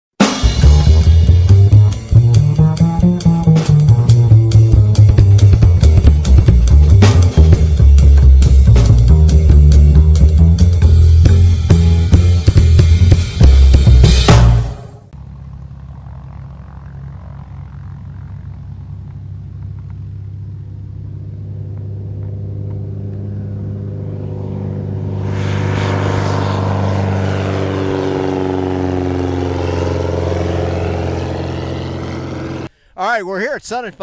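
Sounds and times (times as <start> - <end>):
light aircraft engine and propeller: 0.4 - 32.9.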